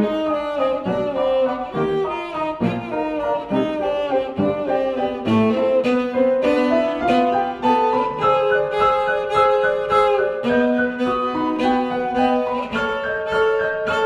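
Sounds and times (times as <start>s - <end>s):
bowed cello melody: 0.0s - 14.0s
piano chords: 0.0s - 14.0s.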